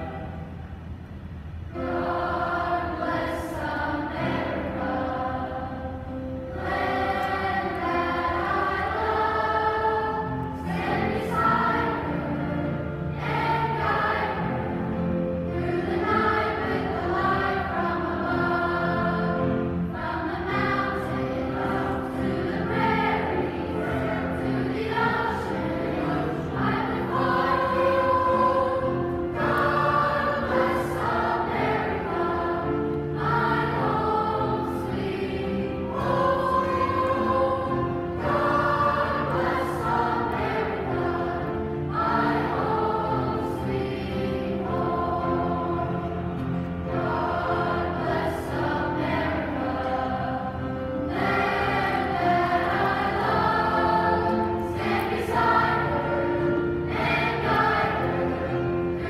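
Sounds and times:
children's choir singing: 0.0s - 59.0s.

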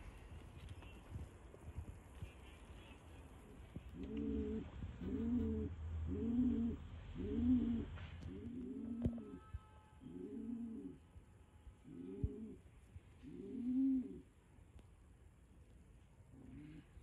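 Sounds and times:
pigeon cooing: 3.8s - 9.4s, 10.0s - 11.0s, 11.8s - 12.6s, 13.2s - 14.3s, 16.3s - 17.0s.

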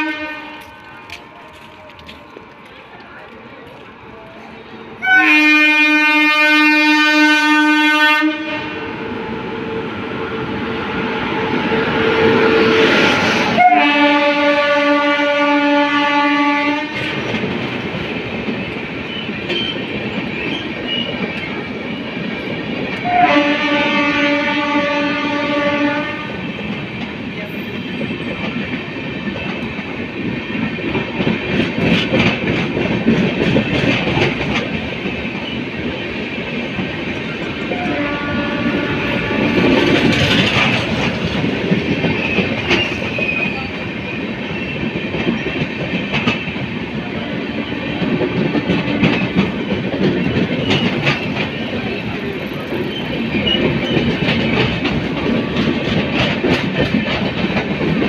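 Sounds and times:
train horn blasts: 0.0s - 1.0s, 5.0s - 9.8s, 11.6s - 17.2s, 23.0s - 26.6s, 37.7s - 40.0s
train coaches rumbling past: 0.0s - 58.0s
wheels clattering over rail joints: 39.2s - 58.0s.

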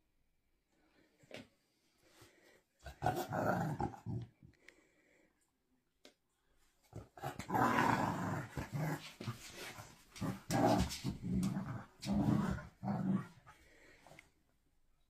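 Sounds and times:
dogs growling in play: 2.8s - 4.4s, 7.0s - 13.8s.

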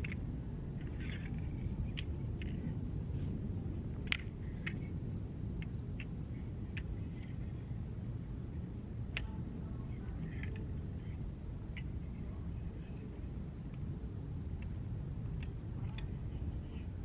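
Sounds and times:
metal pole sections clinking: 4.1s - 4.9s.

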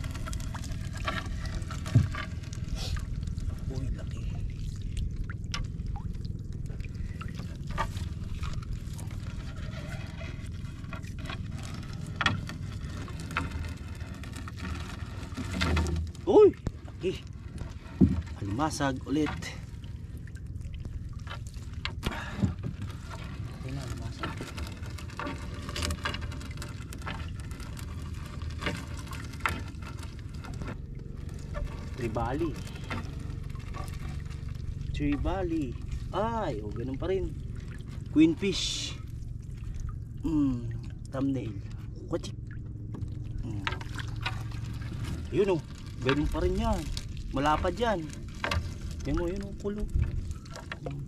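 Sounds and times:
wet net rustling: 0.0s - 50.9s
steady low rumble: 0.0s - 51.0s
water dripping and splashing: 0.0s - 51.0s
water dripping: 2.4s - 7.7s, 32.2s - 51.0s.

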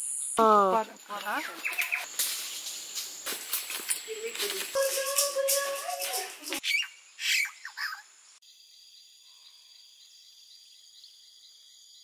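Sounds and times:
insects chorus: 0.0s - 12.0s
bird chirps: 1.3s - 2.2s, 6.0s - 12.0s.

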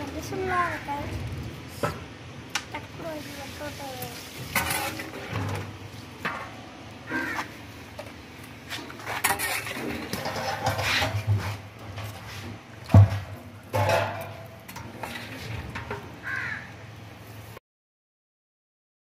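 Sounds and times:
ladle scraping metal pot: 4.2s - 7.4s, 8.6s - 16.0s.

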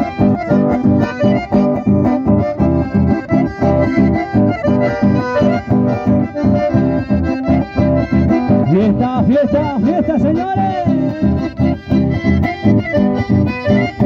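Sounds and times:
accordions and guitar dance tune: 0.0s - 14.0s.

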